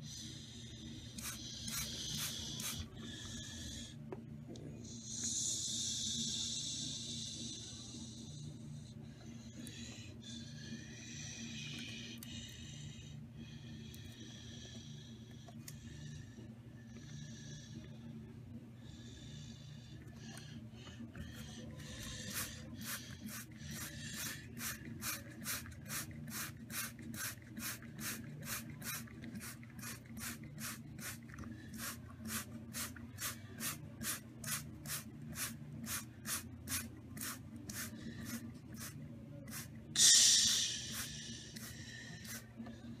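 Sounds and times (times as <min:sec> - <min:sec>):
pulsing hiss: 0:00.0 - 0:04.0, 0:04.8 - 0:18.1, 0:18.8 - 0:42.6
long loud hiss: 0:39.5 - 0:42.4.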